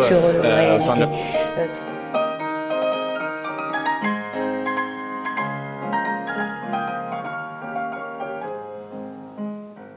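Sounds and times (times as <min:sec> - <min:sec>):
piano music: 0:00.0 - 0:09.9.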